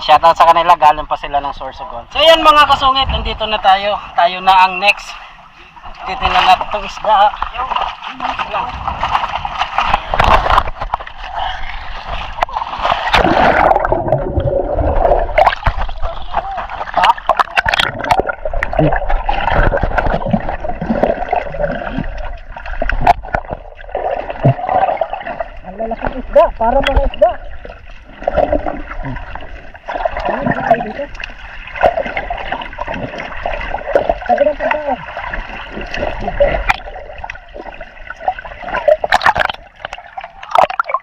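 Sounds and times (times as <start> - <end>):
muffled water sloshing underwater: 2.8 - 41.0
sharp splashes: 7.6 - 25.6.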